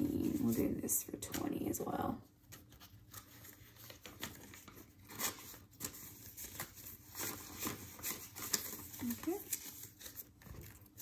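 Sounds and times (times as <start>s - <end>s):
paper banknotes rustling: 2.4s - 11.0s.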